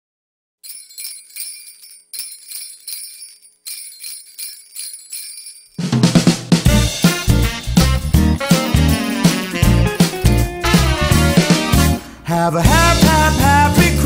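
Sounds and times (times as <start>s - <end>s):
sleigh bells shaken: 0.6s - 6.0s, 7.6s - 11.2s
pop band with bass and drums: 6.2s - 14.0s.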